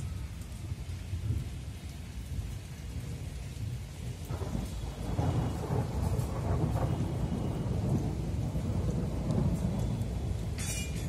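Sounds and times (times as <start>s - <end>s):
rain falling: 0.0s - 11.0s
thunder rumbling: 0.0s - 11.0s.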